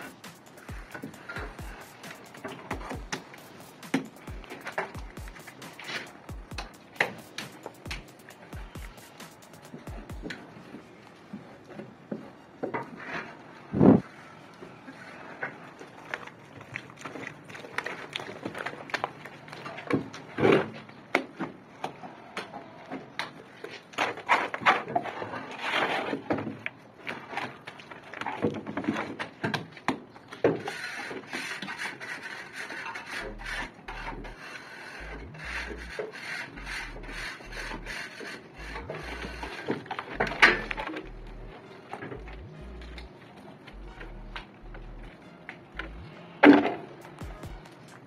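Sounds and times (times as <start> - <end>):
trowel scraping plaster on wall: 0.0 - 9.8, 23.9 - 26.5, 30.5 - 40.9.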